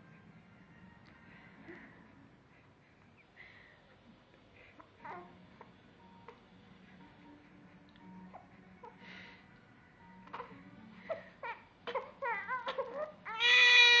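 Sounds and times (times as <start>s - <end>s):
newborn baby crying: 4.8s - 6.4s, 10.2s - 14.0s.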